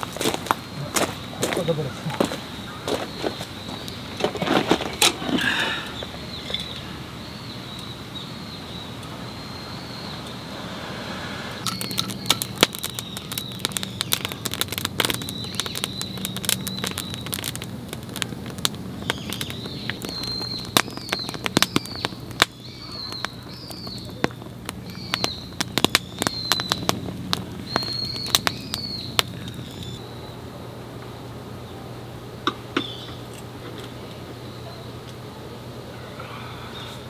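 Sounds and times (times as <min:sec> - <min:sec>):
campfire crackling and popping: 0:00.0 - 0:10.4, 0:11.6 - 0:30.1.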